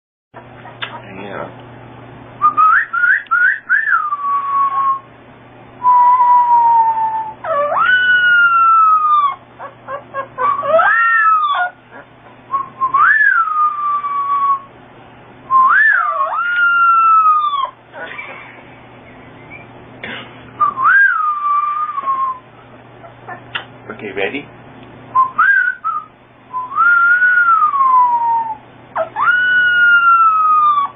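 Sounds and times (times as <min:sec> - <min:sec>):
person whistling: 0:02.4 - 0:05.0, 0:05.8 - 0:07.2, 0:20.6 - 0:22.4, 0:25.2 - 0:28.6
puppy howling: 0:02.6 - 0:05.0, 0:05.8 - 0:14.7, 0:15.5 - 0:18.5, 0:20.6 - 0:22.4, 0:26.6 - 0:30.9.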